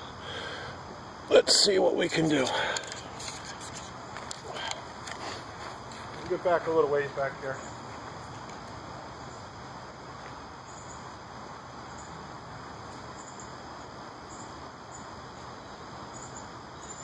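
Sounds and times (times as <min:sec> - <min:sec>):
faint high insect chirps: 0:00.0 - 0:17.0
steady background hiss: 0:00.0 - 0:17.0.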